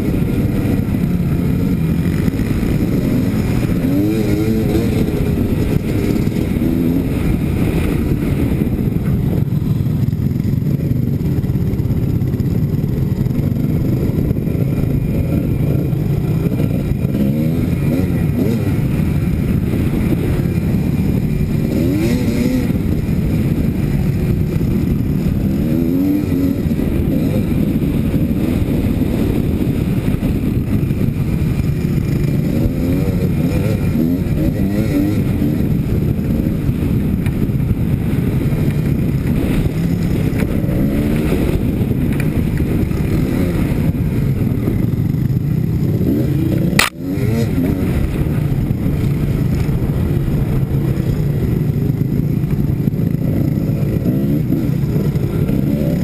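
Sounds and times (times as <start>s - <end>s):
two-stroke engine revving: 0.0s - 56.0s.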